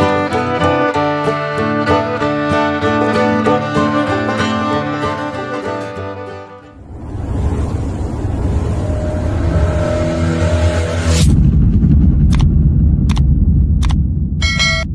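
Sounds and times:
rumbling swell: 0:06.6 - 0:14.9
deep rumble: 0:06.7 - 0:14.9
sudden hit: 0:06.8 - 0:14.9.

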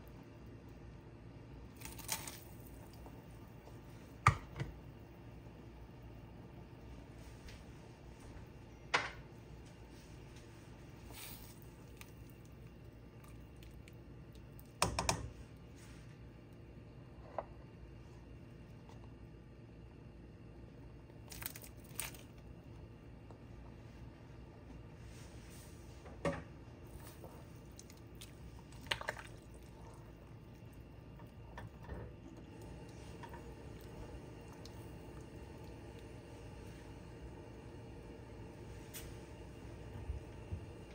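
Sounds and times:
liquid sloshing in a pot: 0:26.8 - 0:37.0.

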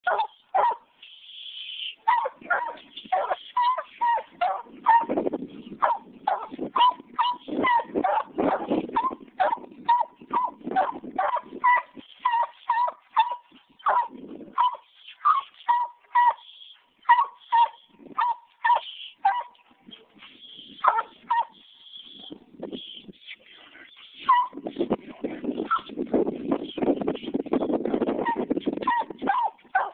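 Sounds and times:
dog barking rapidly: 0:00.0 - 0:00.9, 0:02.0 - 0:05.1, 0:05.8 - 0:16.4, 0:20.8 - 0:21.6, 0:28.2 - 0:29.9.

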